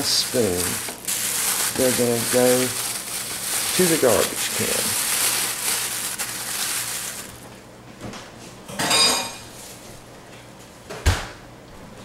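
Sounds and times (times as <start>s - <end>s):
latex gloves rustling: 0.0s - 7.6s.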